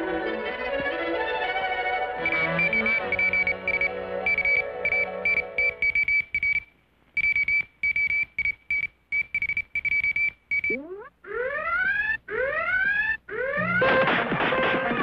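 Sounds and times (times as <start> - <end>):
high-pitched cartoon beeps: 2.2 - 6.6, 9.8 - 13.9.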